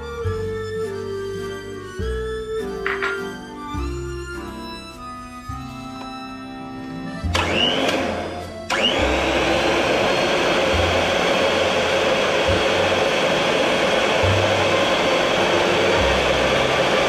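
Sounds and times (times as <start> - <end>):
electric blender motor whining: 7.2 - 17.0.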